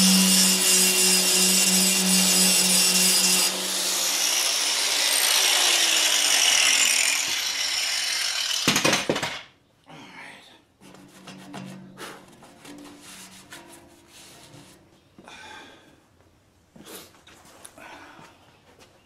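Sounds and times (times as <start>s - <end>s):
angle grinder grinding steel: 0.0s - 8.7s.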